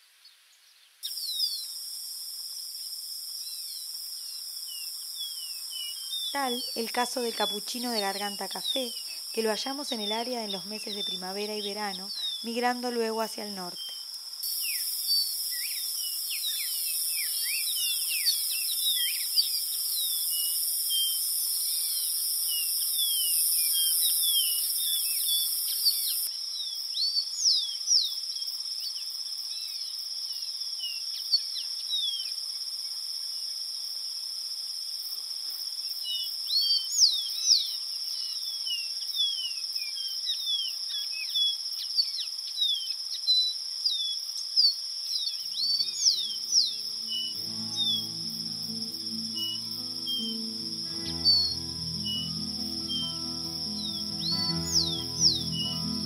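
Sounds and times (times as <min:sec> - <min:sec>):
high hiss: 0:01.0 - 0:13.4, 0:14.1 - 0:26.3, 0:45.5 - 0:56.0
high insect drone: 0:01.0 - 0:56.0
bird singing whistled notes: 0:13.7 - 0:28.2, 0:36.6 - 0:56.0.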